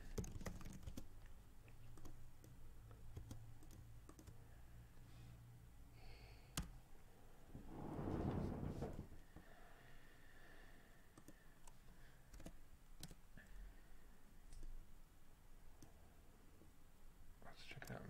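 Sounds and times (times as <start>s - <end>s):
soft rush of noise: 7.1s - 9.8s.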